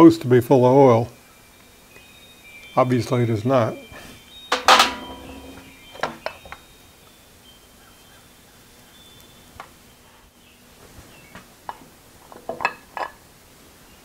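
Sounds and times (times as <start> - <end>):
cast-iron parts clicking and knocking: 4.5 - 6.5.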